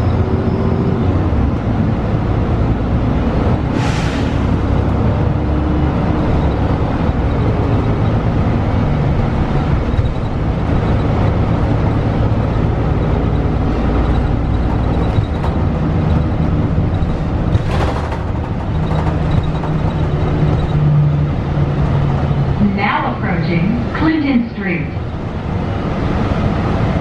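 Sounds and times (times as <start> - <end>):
bus engine and road rumble: 0.0 - 27.0
brief air hiss: 3.8 - 4.4.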